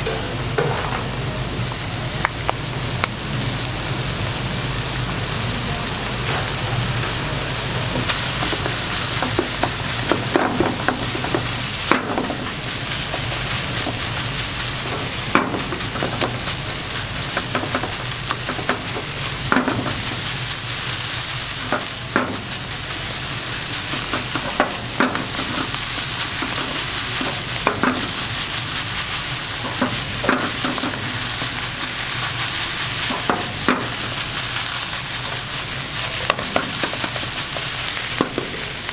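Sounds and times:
rice sizzling in a frying pan: 0.0 - 38.9
spatula knocking and scraping pan: 8.4 - 14.1, 14.8 - 16.5, 23.9 - 28.2, 29.6 - 31.9.

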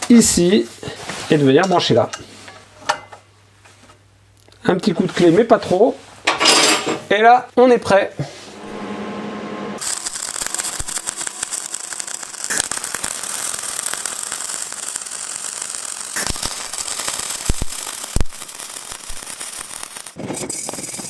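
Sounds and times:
sharp pops: 9.8 - 20.2
welding arc crackling hiss: 9.8 - 21.0.

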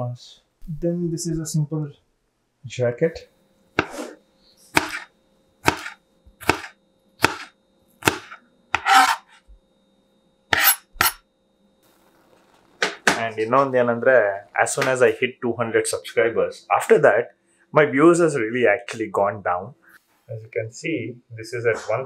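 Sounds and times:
knife chopping on cutting board: 3.8 - 4.1, 4.7 - 9.3, 10.5 - 11.2.

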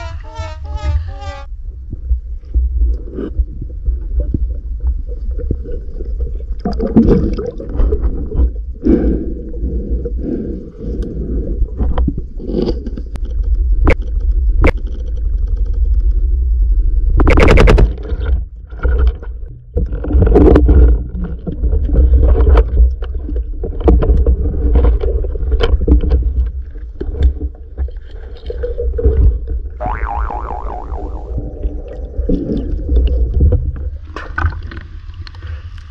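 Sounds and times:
underwater water rumble: 0.0 - 35.9.

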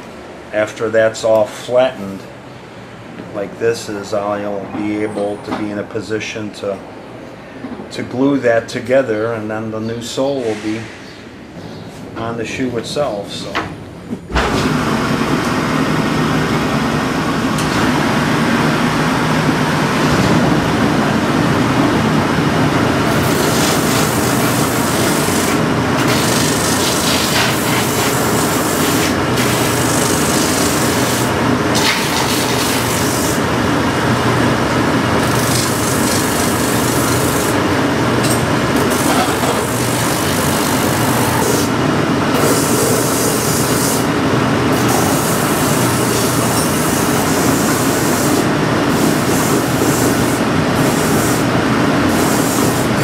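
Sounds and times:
shoe finishing machine running: 14.5 - 53.0
shoe sole grinding on sanding wheel: 23.1 - 33.4, 35.2 - 37.6.

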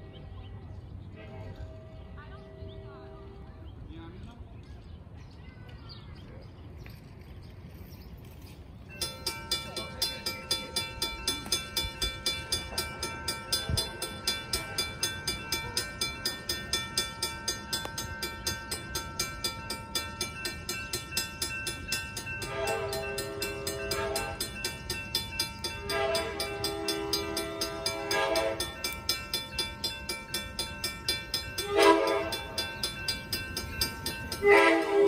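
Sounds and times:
crossing signal bell dinging: 8.9 - 35.0
locomotive horn blasts: 22.4 - 24.6, 25.8 - 29.0, 31.6 - 32.6, 34.4 - 35.0.

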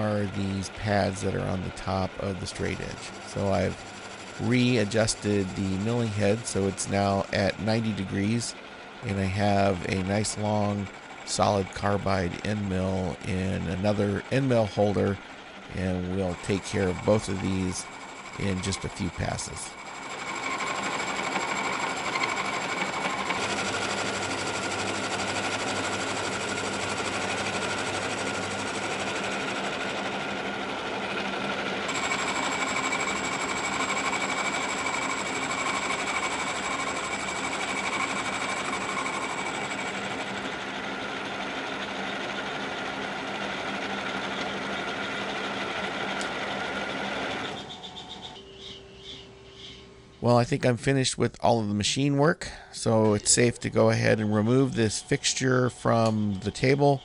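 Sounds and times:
milling machine running: 0.0 - 48.6.

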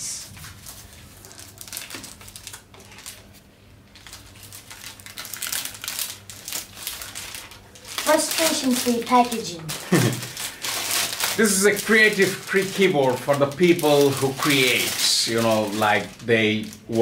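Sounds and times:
plastic packaging crinkling: 0.2 - 17.0.

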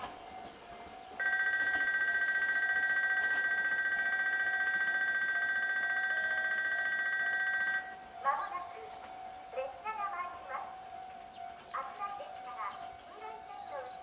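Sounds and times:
railway warning bell ringing: 0.0 - 14.0.

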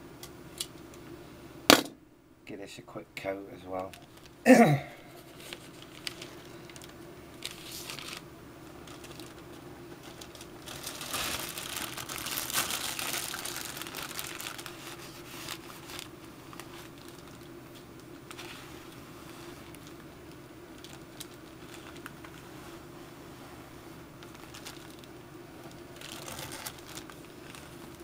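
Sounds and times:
plastic bag crinkling: 3.8 - 4.4, 5.3 - 22.6, 24.2 - 28.0.

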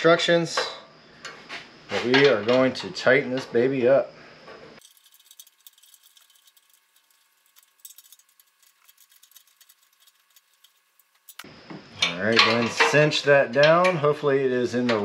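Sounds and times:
hand tools ticking and clicking: 4.8 - 12.9.

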